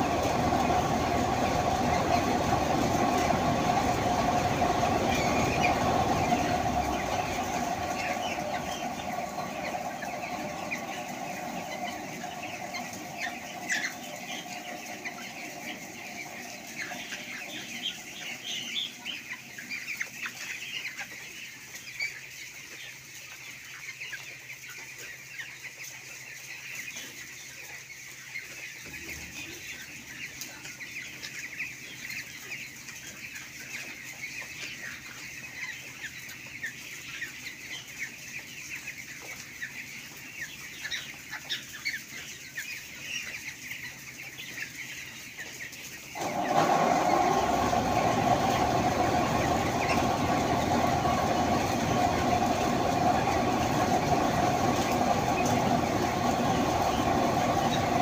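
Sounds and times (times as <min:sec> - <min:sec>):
faint low hum: 0:00.0 - 0:20.9, 0:45.9 - 0:58.0
chickens cheeping and clucking: 0:00.0 - 0:58.0.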